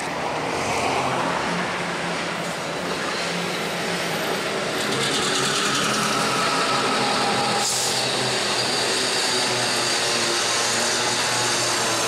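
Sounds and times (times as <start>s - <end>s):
diesel locomotive engine running: 2.0s - 12.0s
train wheels clattering on rails: 2.4s - 12.0s.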